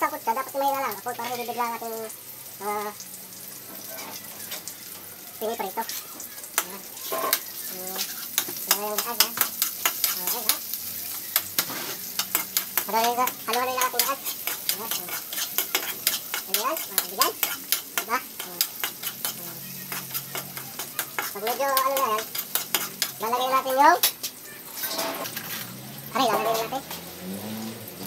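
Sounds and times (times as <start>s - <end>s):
onions sizzling in oil: 0.0s - 28.0s
metal spoon scraping wok: 5.6s - 28.0s.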